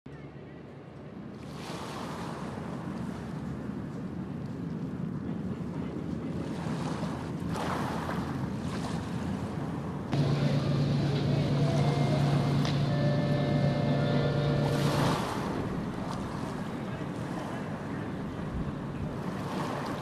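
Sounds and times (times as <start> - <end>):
wind: 0.1 - 20.0
ship machinery low hum: 9.1 - 20.0
faint steady high tones: 10.2 - 16.8.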